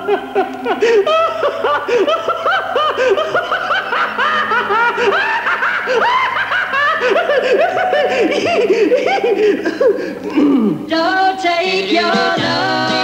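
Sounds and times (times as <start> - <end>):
high-pitched recorded laughter: 0.0 - 10.2.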